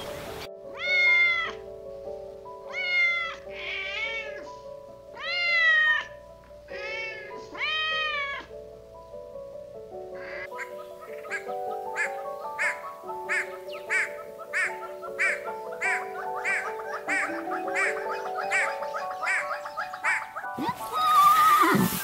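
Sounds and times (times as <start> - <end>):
background music with held notes: 0.0 - 22.0
cat meowing: 0.7 - 1.6, 2.7 - 4.5, 5.2 - 8.6.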